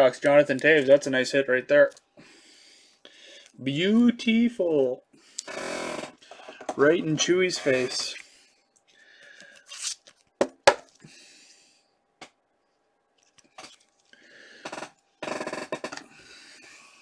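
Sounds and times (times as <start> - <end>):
cards and packaging rustling: 13.1 - 14.2.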